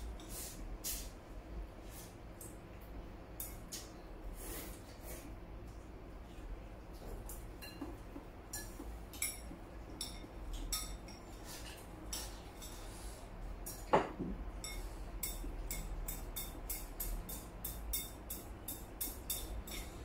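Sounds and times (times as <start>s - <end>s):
chopsticks clinking on porcelain bowls: 7.3s - 12.9s, 13.6s - 20.0s.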